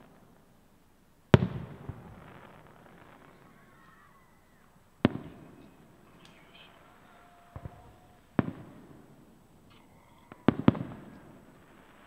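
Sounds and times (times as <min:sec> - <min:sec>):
small firework pops: 0:01.3 - 0:08.8, 0:09.6 - 0:12.0
firework shells bursting: 0:01.3 - 0:12.0.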